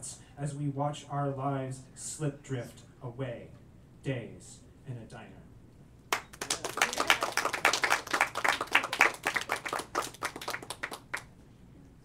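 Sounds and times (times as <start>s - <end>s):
audience applauding: 6.1s - 11.3s.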